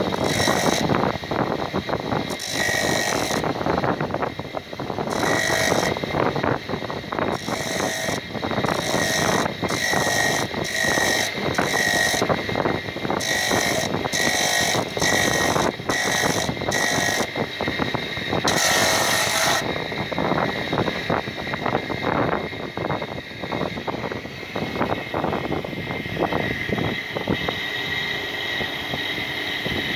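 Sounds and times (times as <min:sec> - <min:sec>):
salt grinding screech on blade: 0:00.0 - 0:00.9, 0:02.3 - 0:03.5, 0:05.1 - 0:06.0, 0:07.3 - 0:12.4, 0:13.2 - 0:17.4, 0:18.4 - 0:19.7
electric motor rattle: 0:00.0 - 0:29.9.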